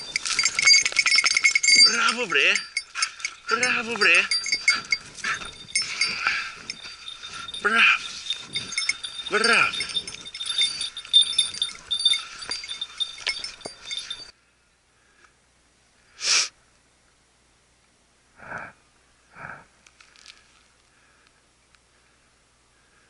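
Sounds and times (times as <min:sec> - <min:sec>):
small metal bell jangling: 0:00.0 - 0:14.4
rustle: 0:00.0 - 0:23.0.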